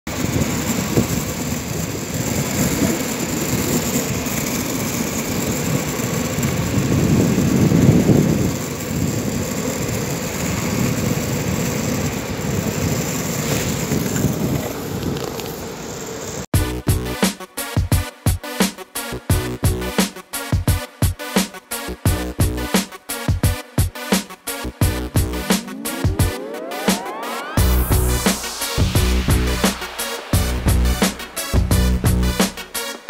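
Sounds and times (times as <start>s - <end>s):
wheels rolling on asphalt: 0.1s - 16.5s.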